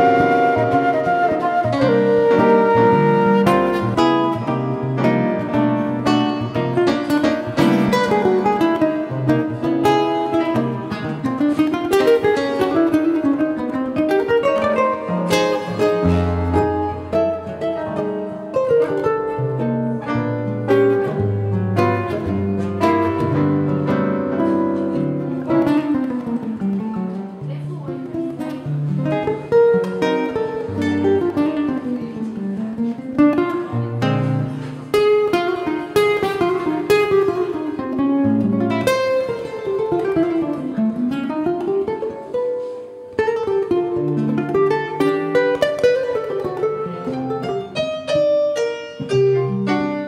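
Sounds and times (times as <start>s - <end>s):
classical guitar plucked runs: 0.0s - 50.0s.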